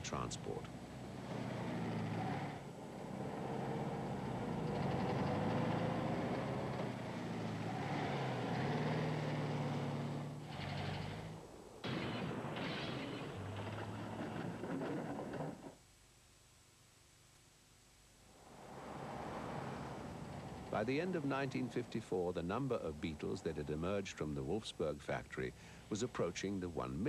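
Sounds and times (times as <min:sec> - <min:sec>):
car engine running hard: 0:00.0 - 0:14.4.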